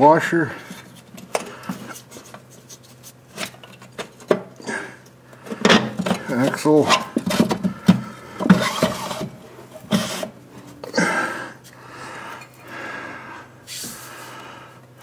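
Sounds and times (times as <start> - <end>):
soft scraping and rustling: 0.6 - 4.2.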